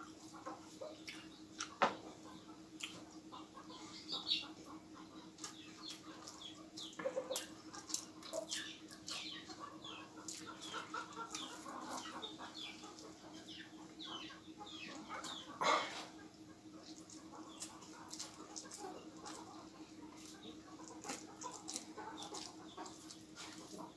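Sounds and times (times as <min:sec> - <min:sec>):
faint steady hum: 0:00.0 - 0:23.9
man chewing with mouth clicks: 0:00.6 - 0:01.8, 0:02.8 - 0:03.2, 0:05.4 - 0:13.2, 0:16.8 - 0:23.9.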